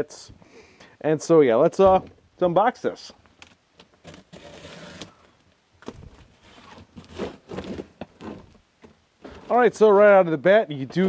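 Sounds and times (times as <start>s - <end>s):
cardboard box scraping: 4.0s - 5.2s, 6.3s - 8.5s.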